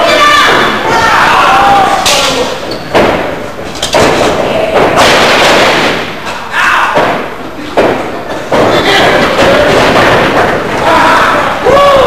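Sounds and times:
bodies thudding on wrestling ring: 2.8 - 6.2.

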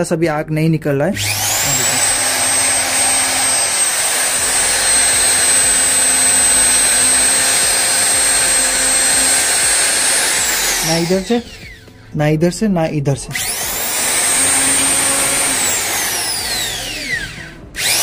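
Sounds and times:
router motor whining: 1.2 - 12.0, 13.4 - 18.0.

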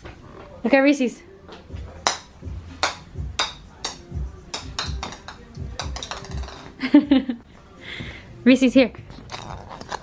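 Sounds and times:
plastic balls bouncing on tile: 2.0 - 6.8.

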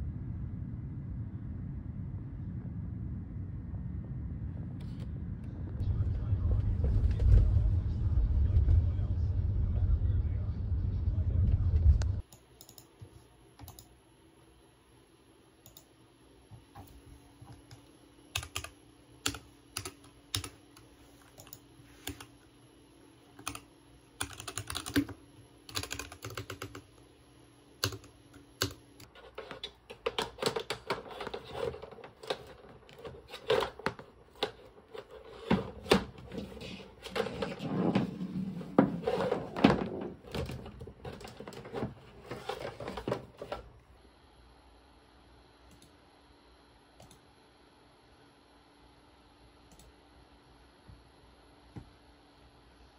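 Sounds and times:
faint steady hum: 0.0 - 52.9
laptop keyboard typing: 12.2 - 12.9, 13.6 - 13.9, 17.5 - 22.4, 23.4 - 27.0, 27.8 - 37.4.

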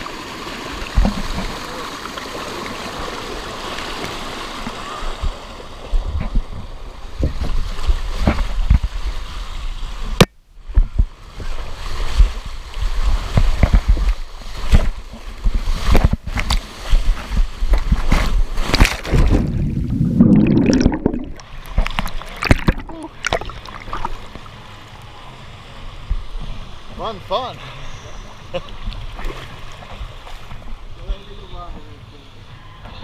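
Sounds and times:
water rushing down a slide: 11.4 - 24.4.

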